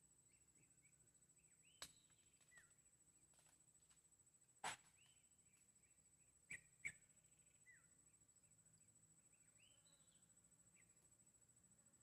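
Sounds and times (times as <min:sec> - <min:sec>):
faint high bird chirps: 0:00.2 - 0:02.8, 0:04.9 - 0:11.0.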